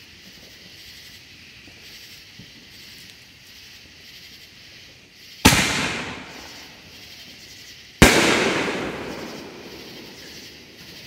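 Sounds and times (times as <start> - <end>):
firework booms: 5.4 - 7.0, 8.0 - 11.0.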